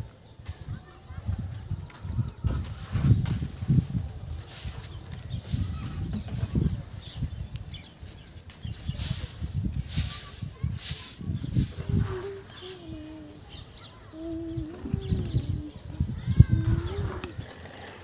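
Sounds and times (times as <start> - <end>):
footsteps on concrete: 0.4 - 4.2.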